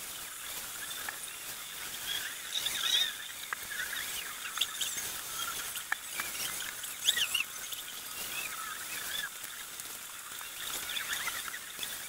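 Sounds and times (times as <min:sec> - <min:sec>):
faint steady hiss: 0:00.0 - 0:12.0
small birds chirping: 0:00.4 - 0:12.0.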